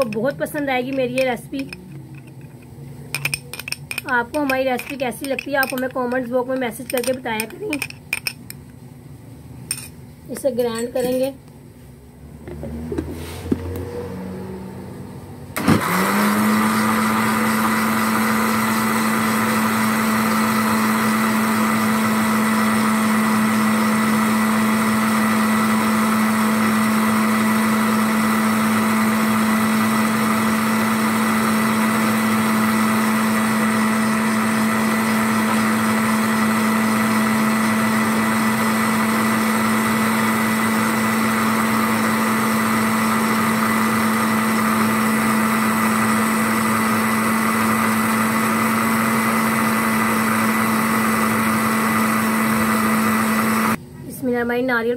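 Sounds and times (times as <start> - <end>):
electric blender running: 12.3 - 14.7, 15.6 - 53.8.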